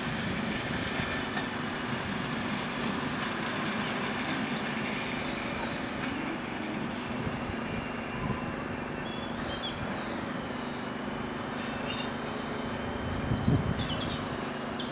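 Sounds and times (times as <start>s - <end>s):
diesel railcar engine drone: 0.0s - 14.9s
faint high squeals: 4.6s - 14.9s.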